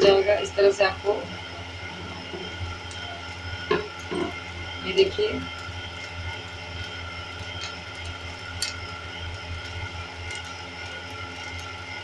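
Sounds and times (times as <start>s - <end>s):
steady low hum: 0.0s - 12.0s
faint clicks and ticks: 2.4s - 12.0s.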